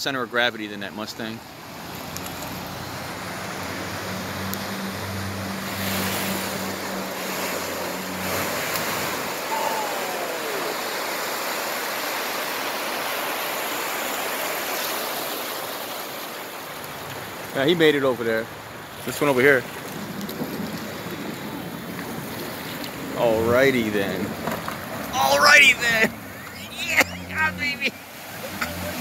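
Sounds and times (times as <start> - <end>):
water rushing and splashing: 0.1 - 29.0
low engine hum: 1.6 - 11.2.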